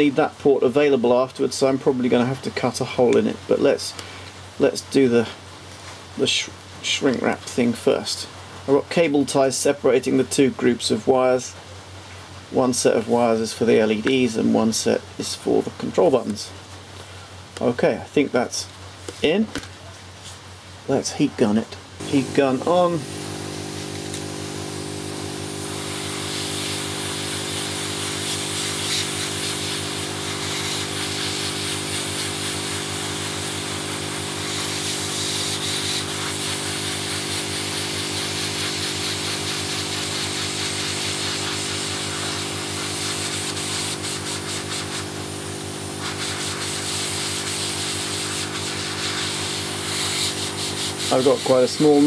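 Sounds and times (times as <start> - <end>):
heat gun fan hum: 22.0 - 52.0.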